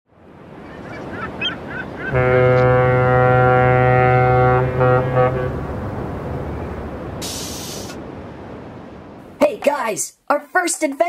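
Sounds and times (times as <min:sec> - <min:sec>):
ship's horn blasts: 0:02.1 - 0:08.1.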